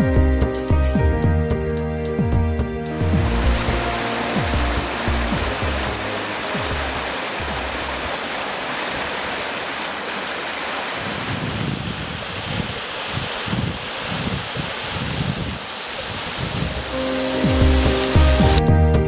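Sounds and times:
background music: 0.0 - 8.1, 16.7 - 19.0
river water rushing over weir: 2.9 - 18.6.

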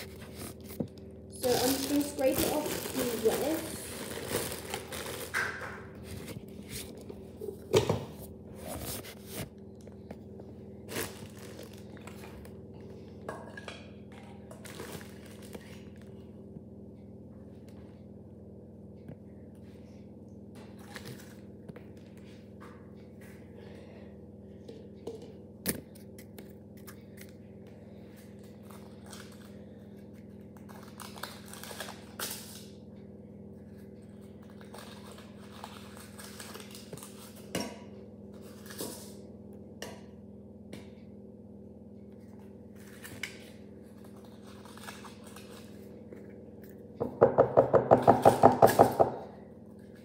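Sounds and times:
beater knocking on glass jug: 47.0 - 49.2.

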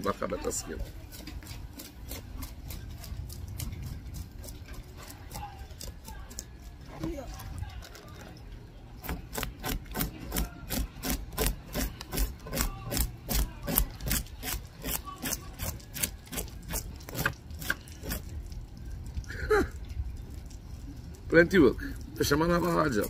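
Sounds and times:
knife scraping fish scales: 0.4 - 8.0, 9.0 - 18.3.

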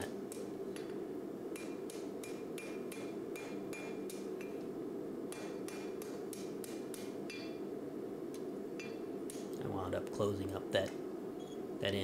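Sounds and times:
hammer striking steel on anvil: 1.6 - 4.6, 5.3 - 7.6, 8.8 - 9.5.

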